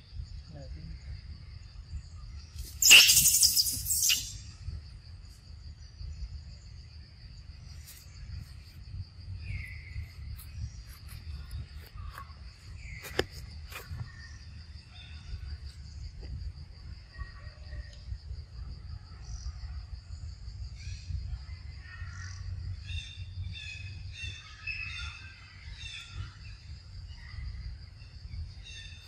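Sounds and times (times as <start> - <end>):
high-pitched insect chorus: 0.0 - 29.0
short chirps: 2.6 - 4.4.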